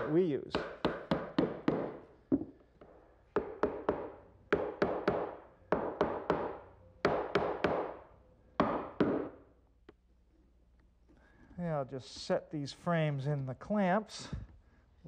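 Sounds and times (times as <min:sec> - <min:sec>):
mallet knocking on wood: 0:03.4 - 0:06.5, 0:08.6 - 0:09.3.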